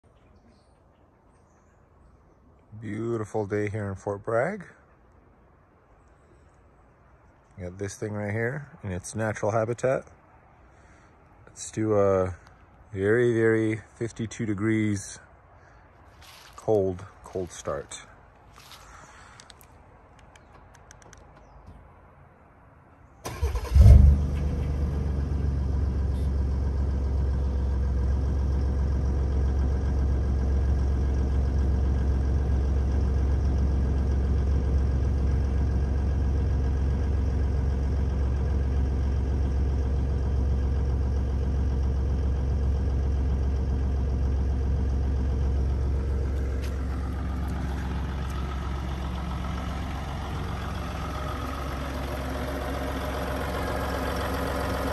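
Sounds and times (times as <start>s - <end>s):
diesel engine idling: 9.2s - 19.7s, 23.2s - 54.9s
diesel engine cranking: 23.2s - 54.9s.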